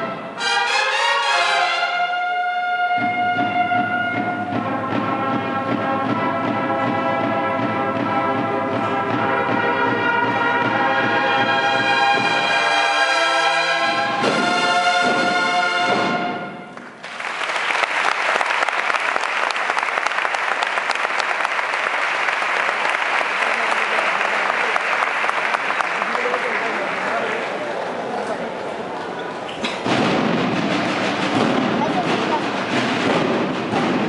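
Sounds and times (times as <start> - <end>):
brass and drum band playing: 0.0 - 17.0, 29.6 - 34.0
audience applause: 16.7 - 29.2.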